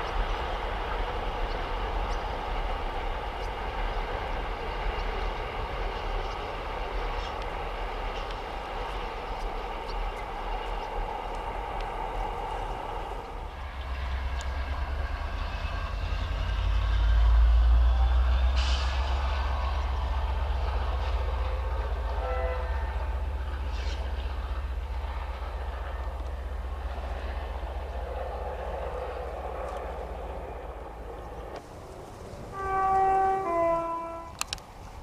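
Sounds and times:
locomotive passing with deep rumble: 0.0s - 35.0s
train horn note: 22.1s - 23.0s, 32.5s - 34.4s.

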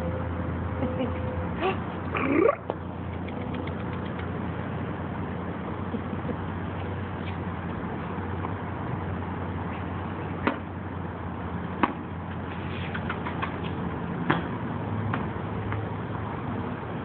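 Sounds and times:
tennis ball bouncing off concrete: 10.4s - 10.7s, 11.8s - 15.9s.

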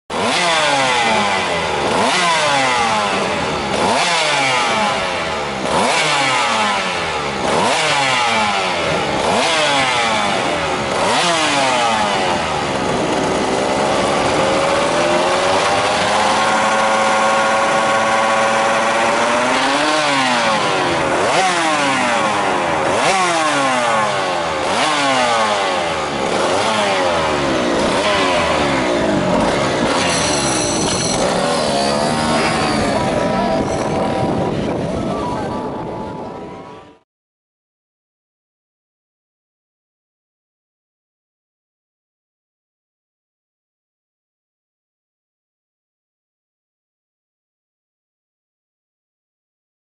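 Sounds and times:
motorcycle engine revving: 0.1s - 37.0s.

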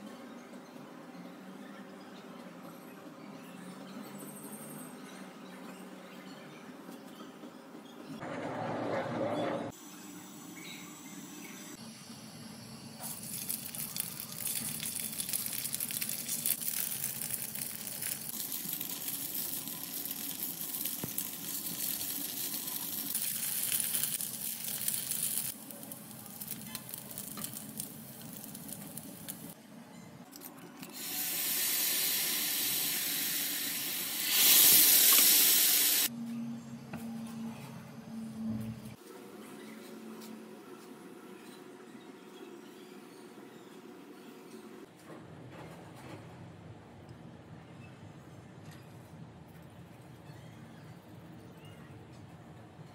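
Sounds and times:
rice cakes sizzling in hot oil: 13.0s - 29.6s, 31.0s - 36.1s
sauce bubbling and sizzling: 13.1s - 29.6s.

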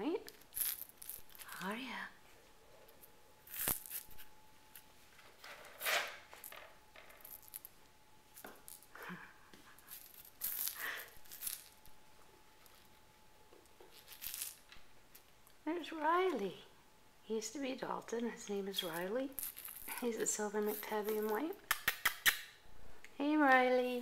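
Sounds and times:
rustling and scraping: 0.3s - 15.3s, 18.8s - 21.5s.

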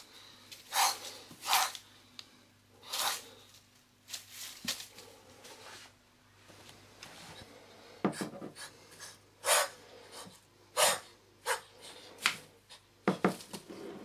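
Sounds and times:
snake hissing: 0.7s - 1.8s
paper rustling in plastic tub: 4.0s - 5.2s.

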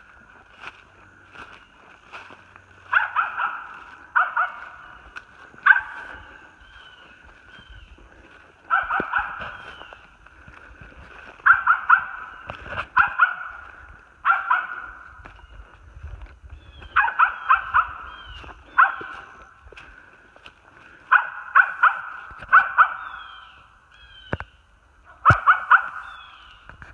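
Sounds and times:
animal barking calls: 2.1s - 10.2s, 11.2s - 15.6s, 16.6s - 19.7s, 20.9s - 24.4s, 25.0s - 26.6s.

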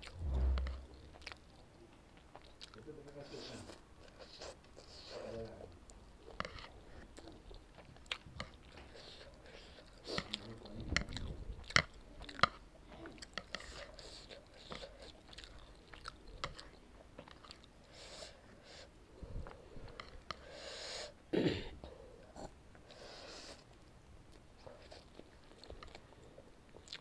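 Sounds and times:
person chewing noodles: 6.2s - 20.5s, 22.7s - 27.0s.

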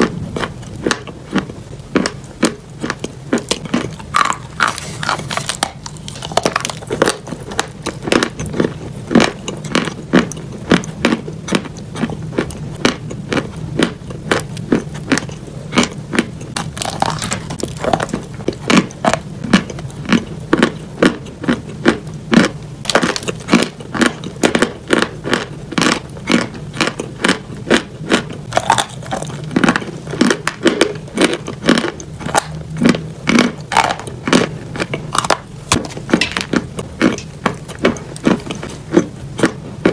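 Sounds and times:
chalk being chewed: 0.4s - 21.7s.

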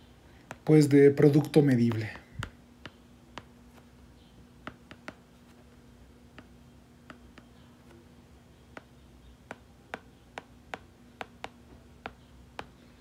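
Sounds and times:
stylus tapping on tablet screen: 0.4s - 0.7s, 1.9s - 4.0s, 4.6s - 8.0s, 8.6s - 12.8s.

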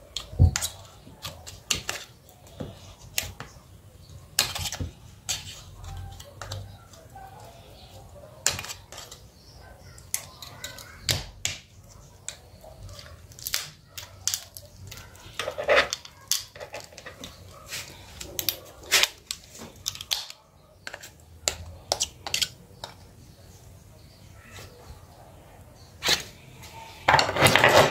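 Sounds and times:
metal tool scraping plastic: 15.0s - 21.2s, 27.0s - 27.9s.

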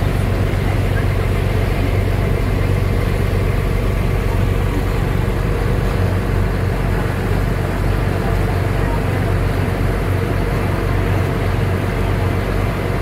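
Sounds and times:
boat engine humming: 0.0s - 13.0s
water rushing: 0.0s - 13.0s
wind: 0.0s - 13.0s.

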